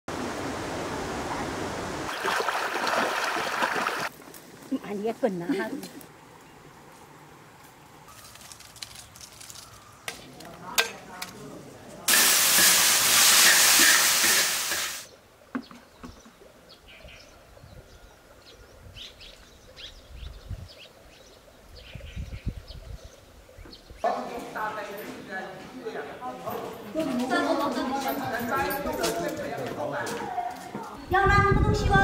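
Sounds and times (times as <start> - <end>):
water splashing onto plants: 2.1 - 4.1.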